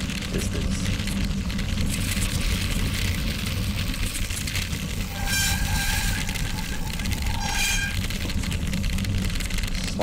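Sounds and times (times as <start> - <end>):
bicycle tyres on gravel: 0.0 - 10.0
bicycle brake squealing: 5.0 - 8.2.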